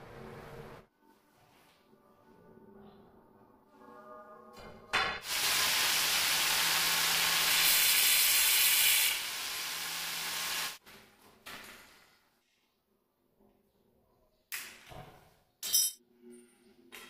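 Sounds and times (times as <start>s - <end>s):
angle grinder cutting stone: 5.3s - 10.8s.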